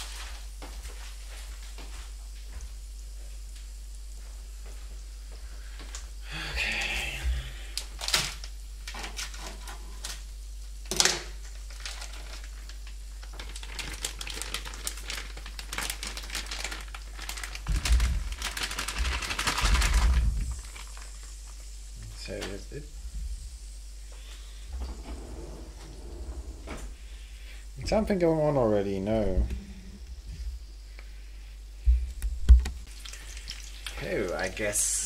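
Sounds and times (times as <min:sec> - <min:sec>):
plastic bag crinkling: 0:11.4 - 0:21.6
oil crackling in frying pan: 0:11.4 - 0:21.8, 0:32.9 - 0:35.0
noodles sizzling in pan: 0:11.4 - 0:22.0, 0:32.9 - 0:35.0.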